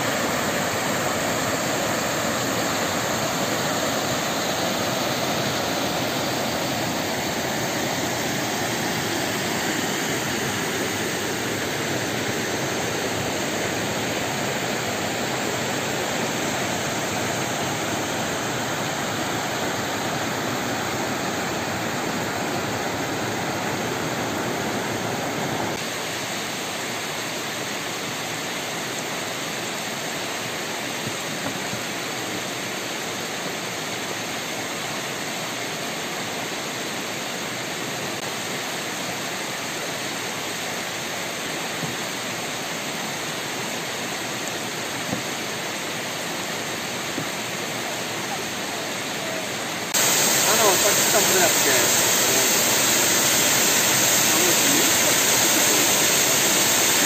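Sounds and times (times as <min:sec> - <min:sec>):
waterfall rushing over rocks: 0:00.0 - 0:57.0.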